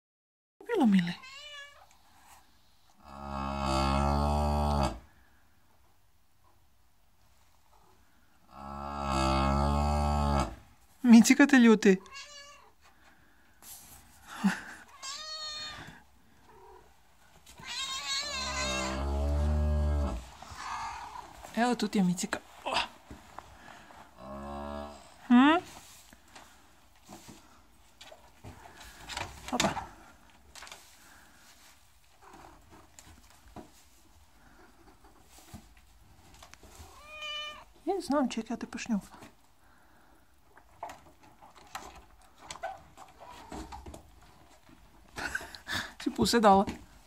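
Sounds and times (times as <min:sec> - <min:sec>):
cat meowing: 0:01.2 - 0:01.9, 0:12.0 - 0:12.7, 0:14.9 - 0:15.9, 0:17.6 - 0:19.1, 0:36.8 - 0:37.7
cow mooing: 0:03.0 - 0:05.0, 0:08.6 - 0:10.6, 0:18.5 - 0:20.2
shuffling: 0:12.8 - 0:19.0, 0:20.1 - 0:24.2, 0:25.4 - 0:38.2.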